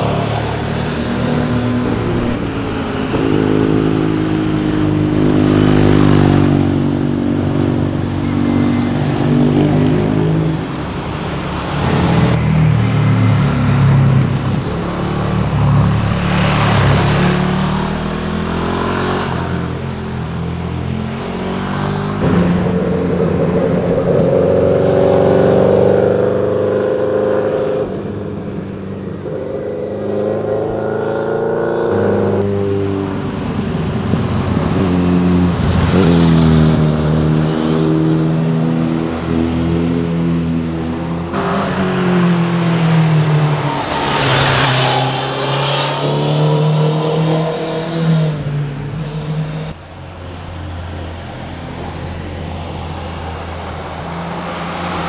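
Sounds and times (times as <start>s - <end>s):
motorcycles revving past: 0.0s - 28.2s.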